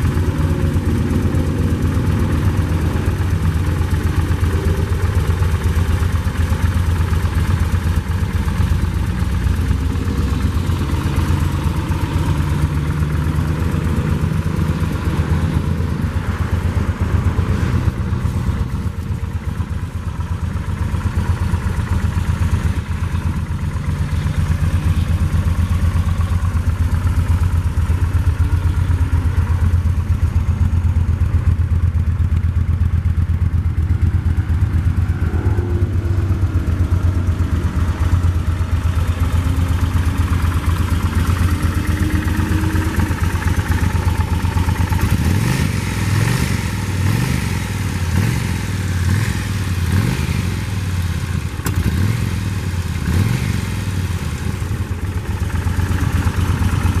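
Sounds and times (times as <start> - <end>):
motorcycle engine idling: 0.0 - 57.0
engine revving: 34.8 - 57.0.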